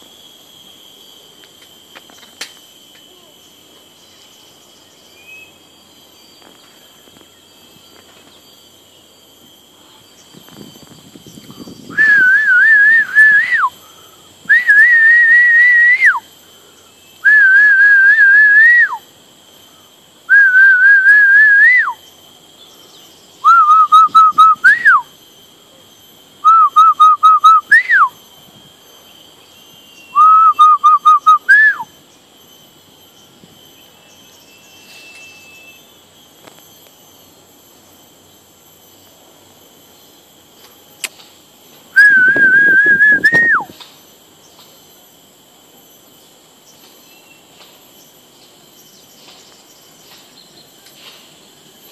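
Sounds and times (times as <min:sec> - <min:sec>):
loud whistles: 0:10.5 - 0:16.3, 0:17.2 - 0:19.1, 0:20.3 - 0:22.1, 0:23.4 - 0:25.2, 0:26.4 - 0:28.3, 0:29.6 - 0:32.0, 0:41.9 - 0:43.8.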